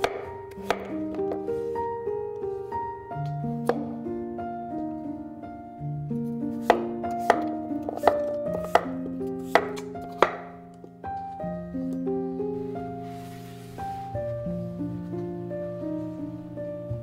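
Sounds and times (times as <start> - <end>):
knife chopping on wooden board: 0.0 - 1.4, 6.6 - 10.5
soft background music: 0.0 - 17.0.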